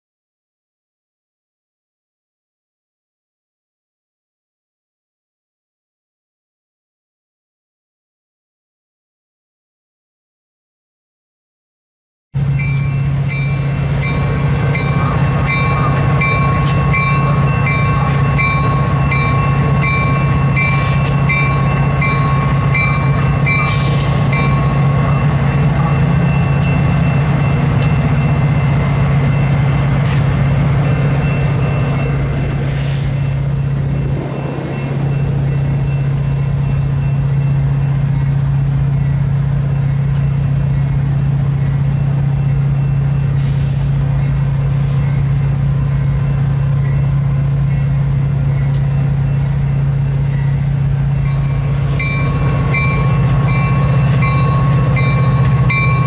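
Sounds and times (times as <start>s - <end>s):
crossing bell ringing: 12.4s - 56.0s
diesel locomotives droning: 12.4s - 56.0s.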